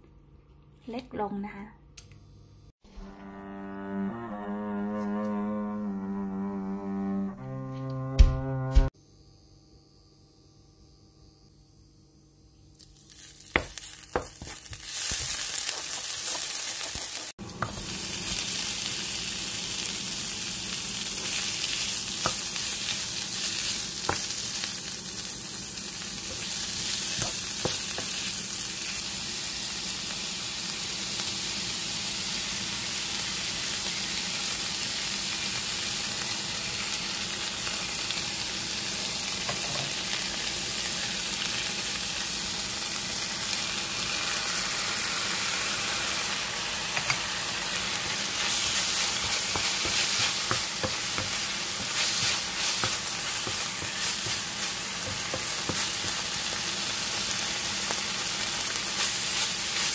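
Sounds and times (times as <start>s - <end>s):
meat sizzling in a pan: 12.8s - 59.9s.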